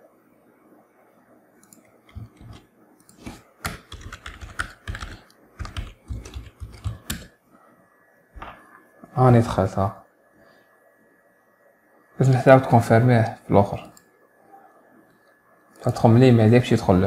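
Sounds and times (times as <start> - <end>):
typing on computer keyboard: 1.6 - 7.4.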